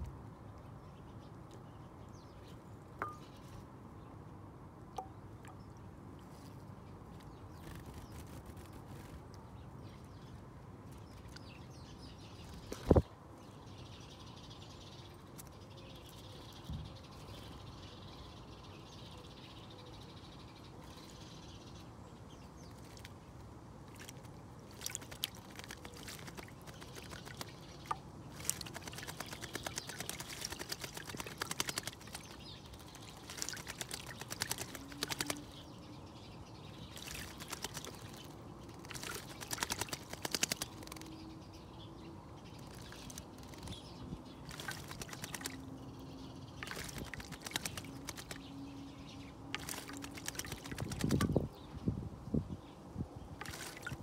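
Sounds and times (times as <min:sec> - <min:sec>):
bird splashing in water: 0:23.9 - 0:35.8, 0:36.8 - 0:41.1, 0:42.5 - 0:45.8, 0:46.5 - 0:48.6, 0:49.5 - 0:51.5, 0:53.4 - 0:54.0.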